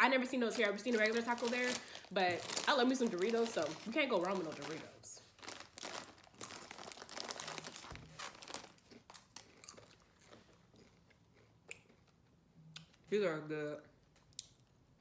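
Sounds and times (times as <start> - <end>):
foil bag crinkling: 0.0 - 10.0
chips crunching when chewed: 5.4 - 13.0.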